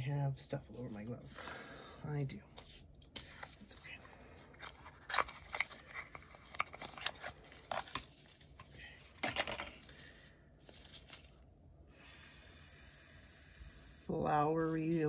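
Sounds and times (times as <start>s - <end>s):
packaging rustle: 3.2s - 11.4s
packaging clicking and crinkling: 4.5s - 9.9s.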